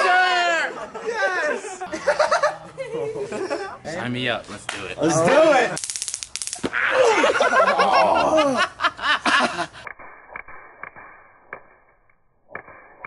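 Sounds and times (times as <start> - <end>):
people laughing and snickering: 0.5 - 3.8, 6.6 - 9.9.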